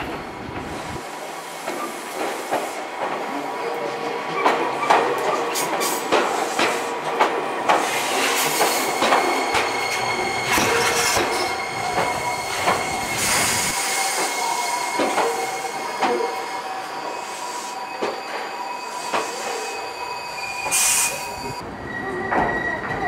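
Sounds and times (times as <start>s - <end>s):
train wheels squealing: 7.8s - 23.0s.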